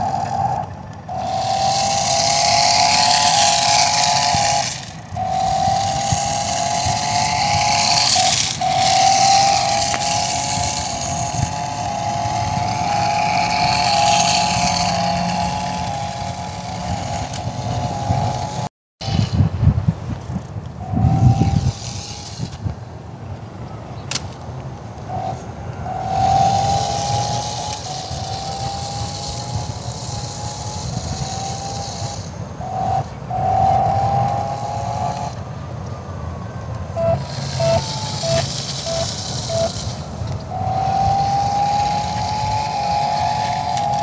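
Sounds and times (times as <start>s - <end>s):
rc car motor whining: 0.0s - 44.0s
short evenly spaced blips: 36.7s - 44.0s.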